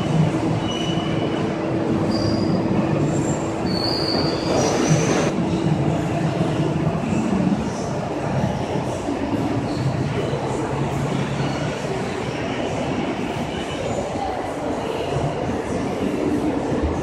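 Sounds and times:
high-pitched machine squeals: 0.6s - 5.3s.

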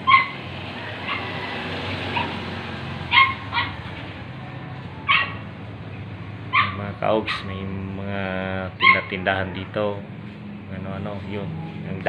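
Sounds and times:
dog yipping: 0.0s - 2.4s, 3.1s - 3.9s, 5.1s - 5.5s, 6.5s - 7.5s, 8.8s - 9.7s.

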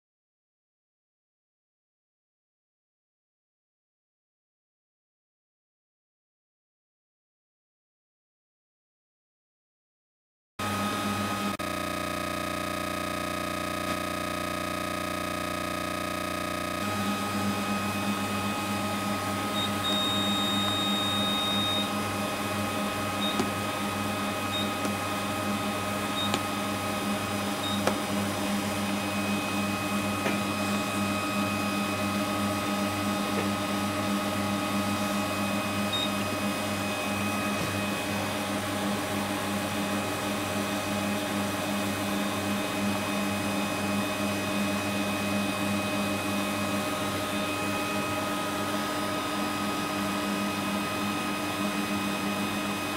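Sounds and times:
pump motor humming: 10.6s - 52.9s
high electronic beeps: 19.5s - 21.9s.

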